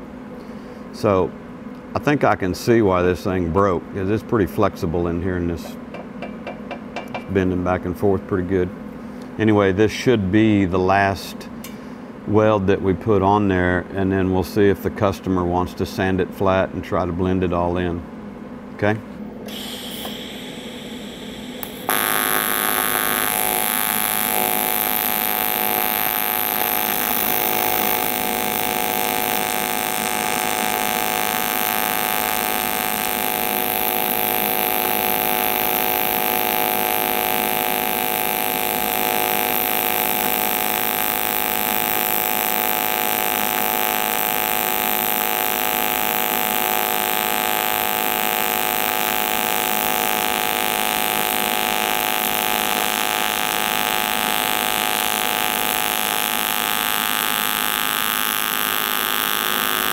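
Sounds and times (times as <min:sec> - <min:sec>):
welding arc buzzing: 0:19.4 - 0:59.9.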